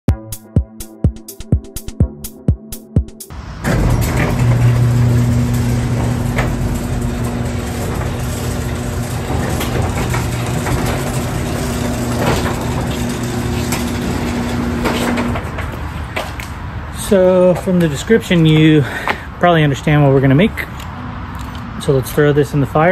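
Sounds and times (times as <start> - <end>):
garage door opener motor hum: 3.3 - 16.5
door panels rattling and grinding: 3.3 - 17.9.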